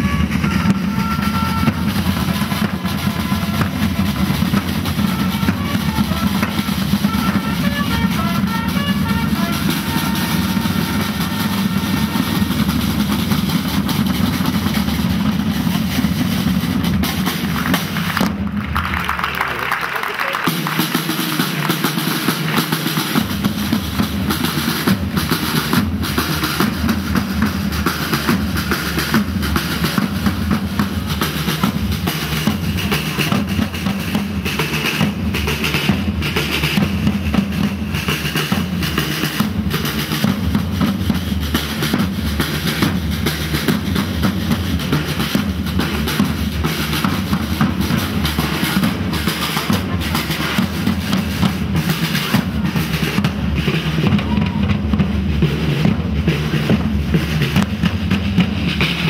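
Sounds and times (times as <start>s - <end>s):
snare and bass drums beating: 0.0s - 19.5s, 20.5s - 59.0s.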